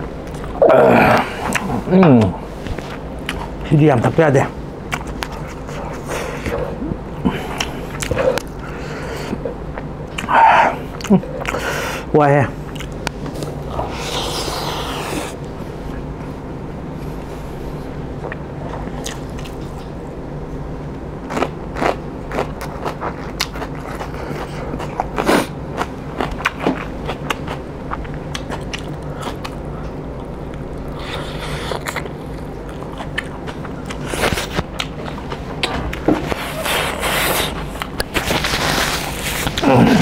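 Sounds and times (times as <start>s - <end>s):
low background hum: 0.0s - 40.0s
chewing and lip-smacking: 1.4s - 1.7s, 4.9s - 6.8s, 7.5s - 8.7s, 9.3s - 11.6s, 12.7s - 15.0s, 18.2s - 20.0s, 21.3s - 38.6s.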